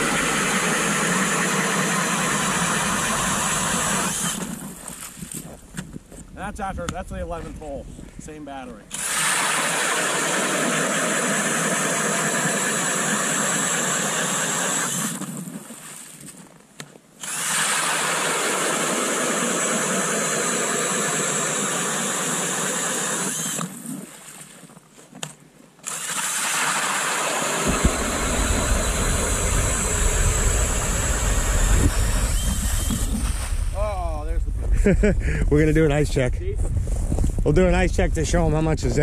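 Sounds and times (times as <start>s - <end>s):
cordless drill auger through ice: 0.0s - 6.0s, 8.9s - 16.6s, 17.2s - 33.8s
deep low rumble: 27.7s - 39.0s.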